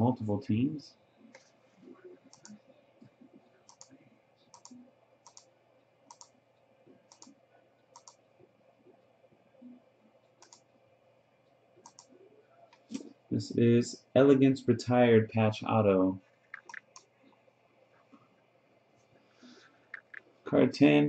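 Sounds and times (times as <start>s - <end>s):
mouse and keyboard clicks: 3.7s - 5.5s, 6.1s - 6.3s, 7.1s - 7.4s, 8.0s - 8.2s, 10.4s - 10.6s, 11.8s - 13.1s, 16.5s - 17.1s, 19.9s - 20.2s.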